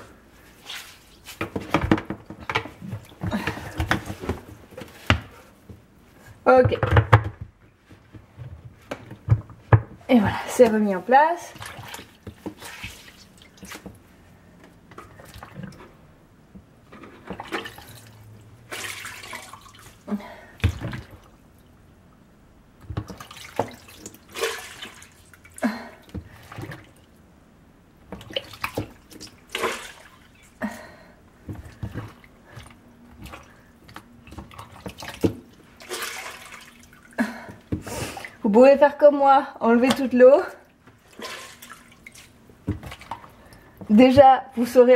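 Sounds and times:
sponge sopping up water: 0.4 - 1.8, 10.1 - 14.0, 16.9 - 21.4, 22.8 - 27.2, 28.0 - 30.8, 31.6 - 38.4, 40.8 - 44.2
water dripping and splashing: 11.4 - 14.0, 17.2 - 21.8, 22.8 - 27.2, 28.1 - 30.6, 31.6 - 38.4, 39.8 - 43.9.

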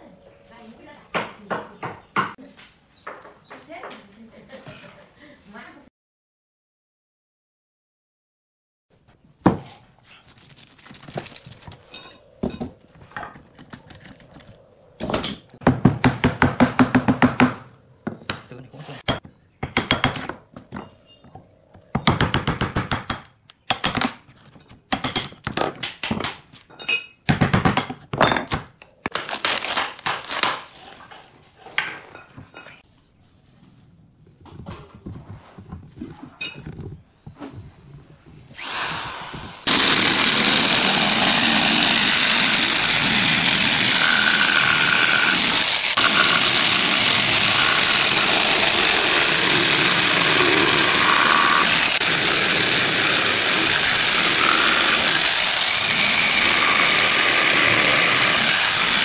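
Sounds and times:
chisel knocking on wood: 19.1 - 20.4.

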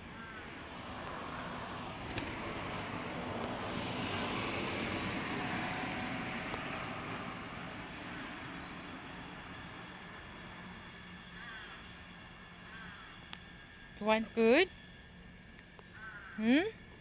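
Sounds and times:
car driving past: 0.2 - 9.1.

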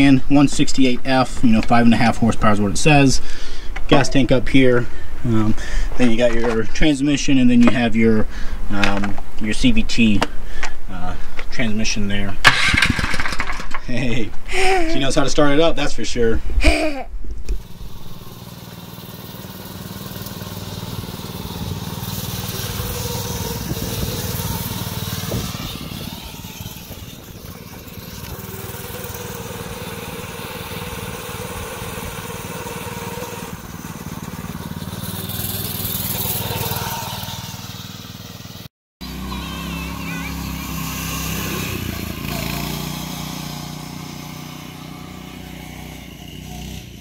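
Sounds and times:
go kart engine running: 12.5 - 13.6, 17.6 - 47.0.

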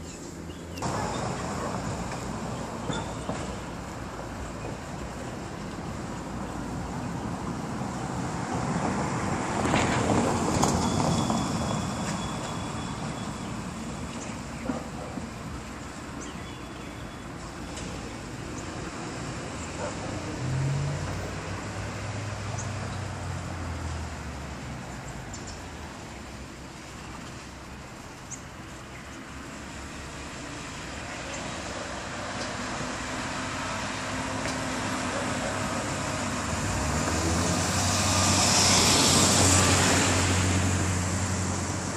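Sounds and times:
cars idling in traffic: 0.0 - 41.9
vehicle passing loudly: 18.9 - 24.9, 29.7 - 41.9.

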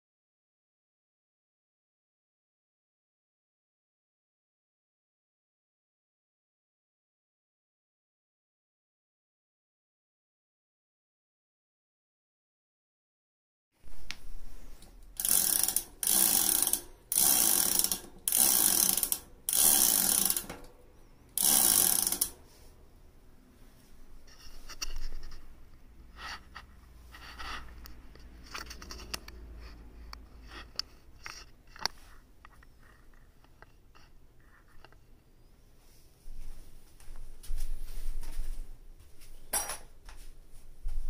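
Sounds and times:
bicycle freehub ratcheting: 14.8 - 20.7, 21.4 - 22.4.

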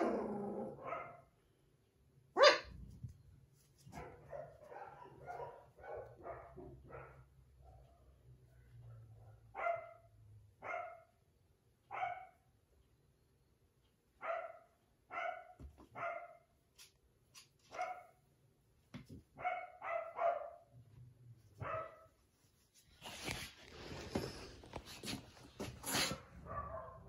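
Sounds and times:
puppy barking in high yips: 2.4 - 2.8, 9.6 - 11.1, 11.9 - 12.4, 14.2 - 16.4, 17.7 - 18.1, 19.4 - 20.6, 21.6 - 22.1.

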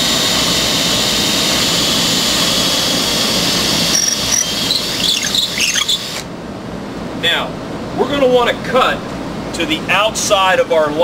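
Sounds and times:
electric drill whining: 0.0 - 6.3.

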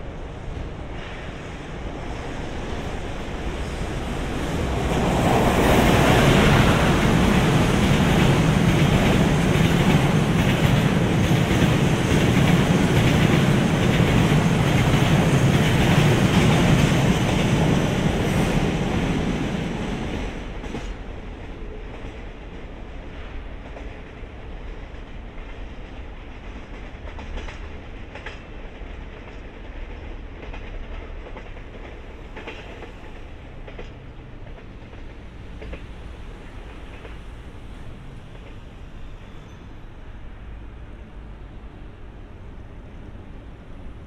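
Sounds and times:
freight train wheels clattering: 2.8 - 21.0.

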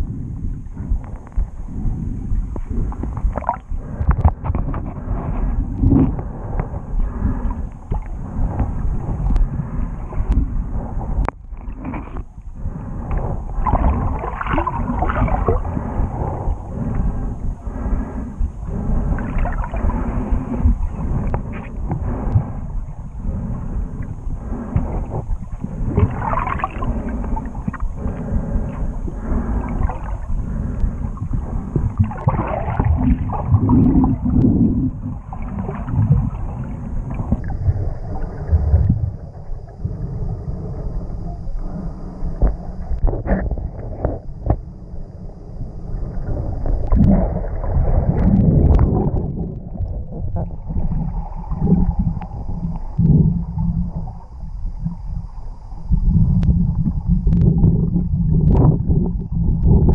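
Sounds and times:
muffled underwater rumble and gurgle: 0.0 - 59.9.

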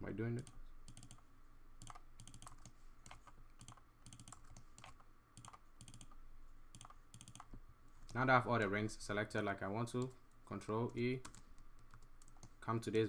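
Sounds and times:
mouse and keyboard clicking: 0.4 - 1.2, 1.8 - 7.6.

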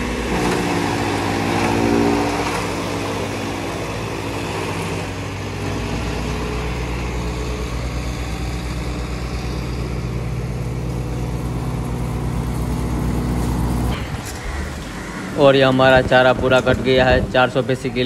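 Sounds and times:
chaff cutter chopping fodder: 0.0 - 8.4
tractor engine running under load: 0.0 - 18.0.

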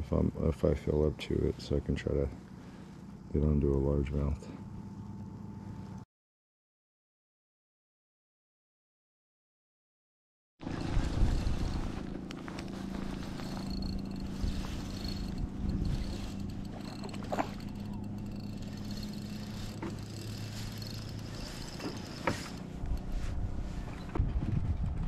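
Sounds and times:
fishing reel gears whirring: 10.6 - 24.1
light reel clicks: 10.8 - 23.2.

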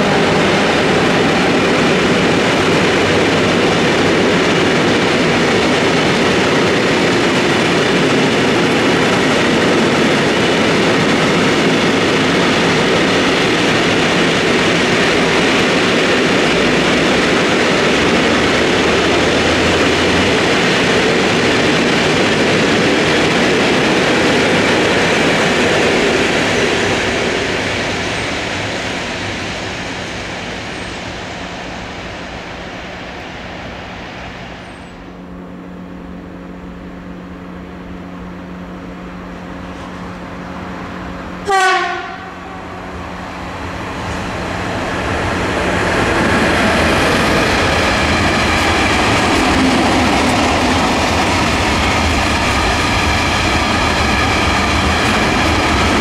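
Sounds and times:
electric locomotive hum: 0.0 - 56.0
train horn blast: 41.4 - 42.8.

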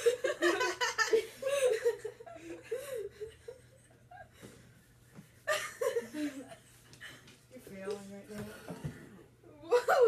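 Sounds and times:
boys laughing: 0.0 - 4.4, 5.4 - 7.3, 9.6 - 10.0.

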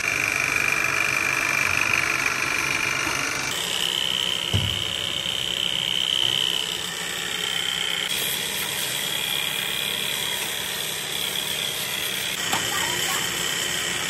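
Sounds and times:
belt-driven drum motor running: 0.0 - 14.0
short thump: 4.5 - 5.1.

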